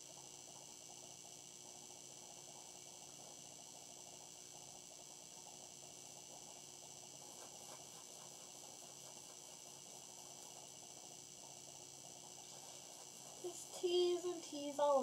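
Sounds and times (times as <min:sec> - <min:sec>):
faint electrical hum: 0:00.0 - 0:15.0
hairbrush rustling hair: 0:12.4 - 0:14.2.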